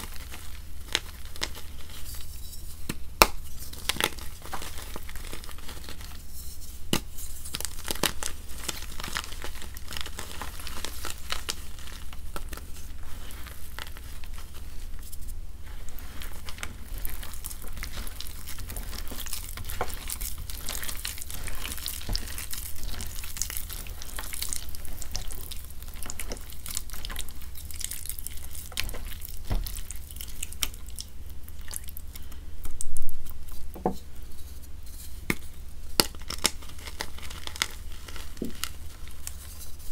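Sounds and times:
chalk crumbling and crackling: 0.0s - 39.9s
wet squishing: 15.6s - 32.8s.

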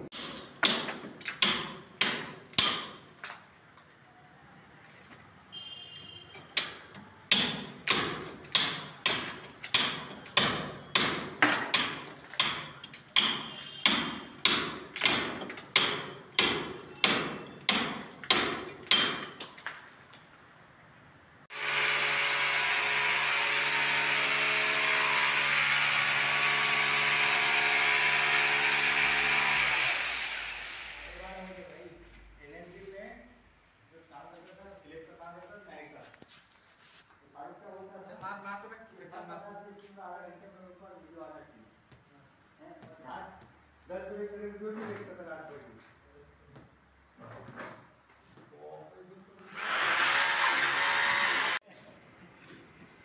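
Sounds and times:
hammer striking chisel into brick: 0.1s - 3.1s, 6.5s - 19.5s
power drill motor running: 21.5s - 31.2s, 49.5s - 51.6s.

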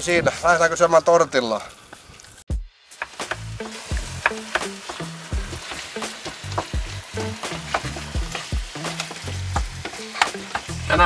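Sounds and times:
meat sizzling in a frying pan: 2.0s - 11.0s.

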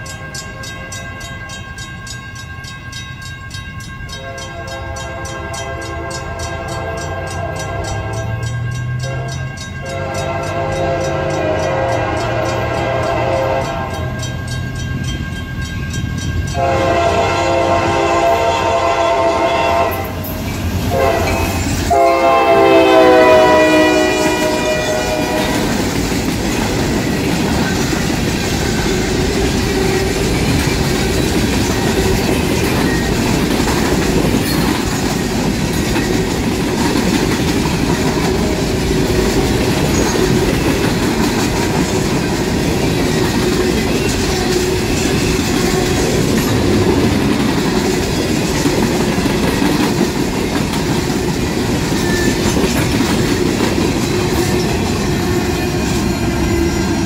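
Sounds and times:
train wheels clattering on rail: 0.0s - 57.0s
locomotive air horn blasts: 4.2s - 8.4s, 9.0s - 14.2s, 16.5s - 20.3s, 20.9s - 25.8s
locomotive engine rumble: 7.6s - 57.0s.

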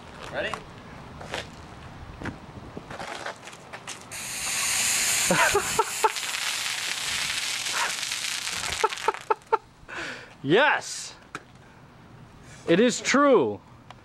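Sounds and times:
soda foaming hiss: 4.1s - 9.4s.

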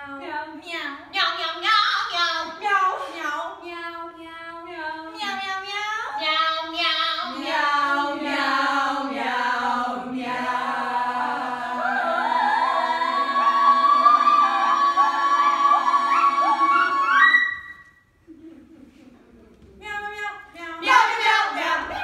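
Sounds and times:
women singing in harmony: 7.2s - 17.8s, 20.5s - 22.0s.

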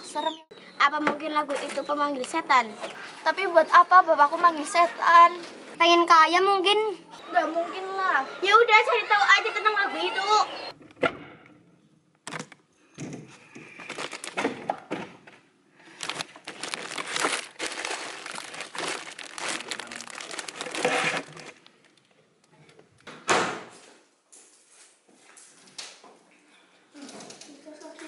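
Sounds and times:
rustling and crinkling items: 13.4s - 22.2s.

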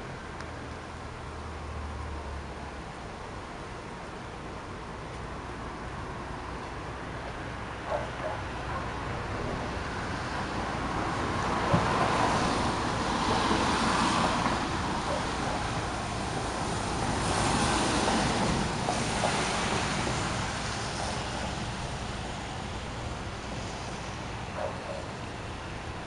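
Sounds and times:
wind and rain rushing: 9.0s - 24.6s.

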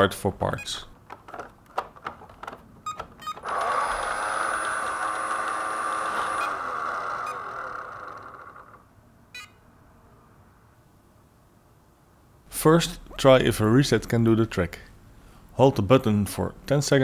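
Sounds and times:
robot vacuum motors whirring: 3.4s - 8.8s.

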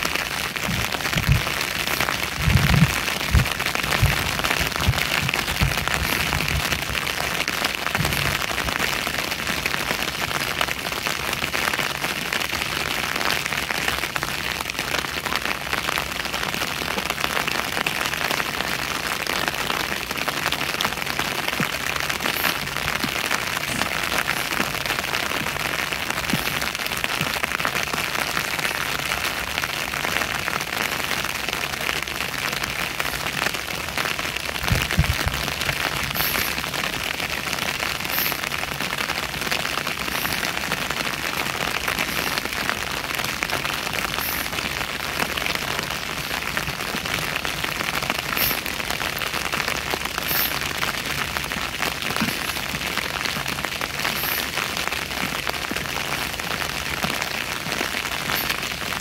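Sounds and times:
steady rain patter: 0.0s - 59.0s
low thuds: 0.6s - 7.0s, 34.6s - 35.4s.

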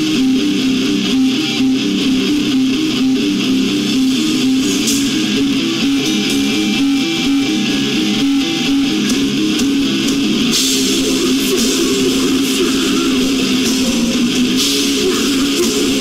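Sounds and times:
distorted guitar and bass riff: 0.0s - 16.0s
drums: 0.0s - 16.0s
cymbals crashing: 3.6s - 7.6s, 10.5s - 16.0s.

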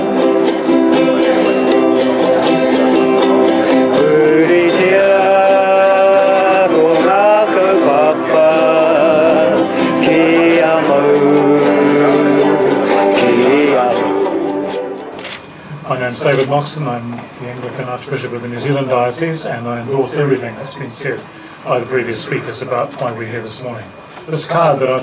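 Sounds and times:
group singing: 0.0s - 15.2s
strummed ukuleles: 0.0s - 16.4s
acoustic guitar: 0.0s - 23.2s.

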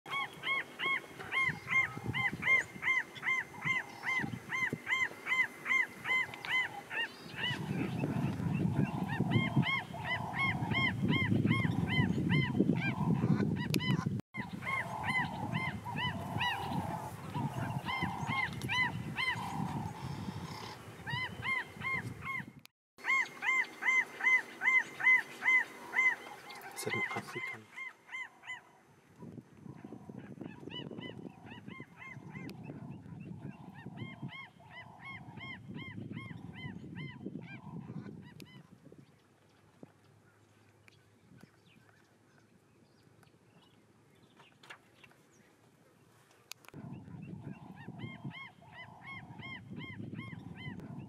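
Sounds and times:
animal honking calls: 23.0s - 28.6s.

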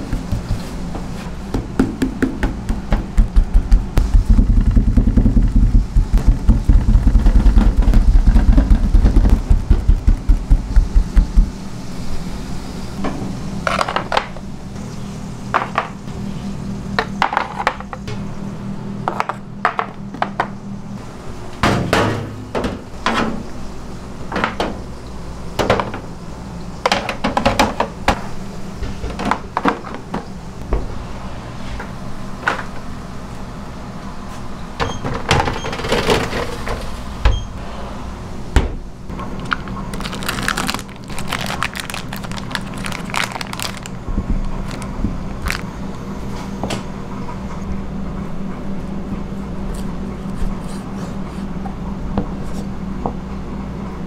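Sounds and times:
steady low hum: 0.0s - 35.0s, 36.4s - 54.0s
plastic packaging crinkling: 39.3s - 45.7s.

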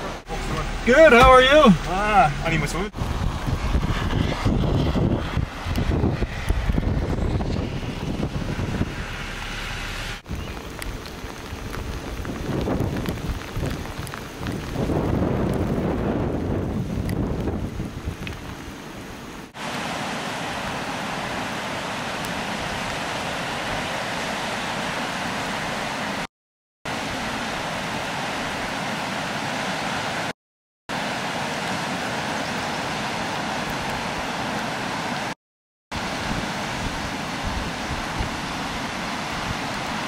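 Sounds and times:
flooded river rushing: 0.0s - 26.3s, 26.9s - 30.3s, 30.9s - 40.0s
wind buffeting microphone: 2.9s - 19.3s.

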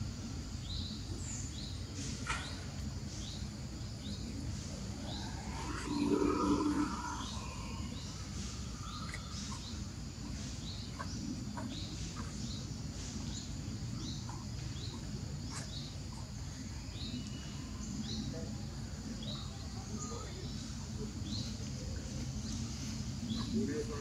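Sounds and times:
steady low rumble: 2.8s - 19.0s
high downward-sliding chirps: 4.5s - 9.5s.

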